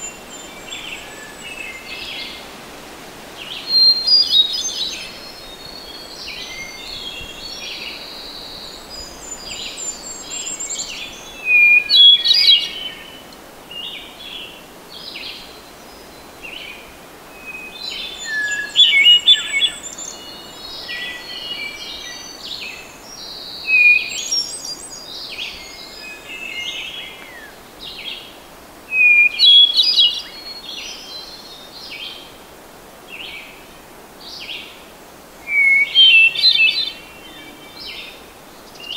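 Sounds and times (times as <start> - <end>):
quieter bird calls: 35.4 - 38.9.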